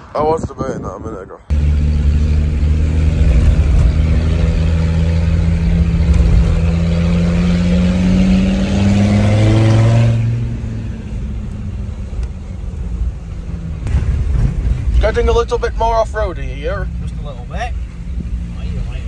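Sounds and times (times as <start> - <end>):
car engine under throttle: 1.5 - 15.0.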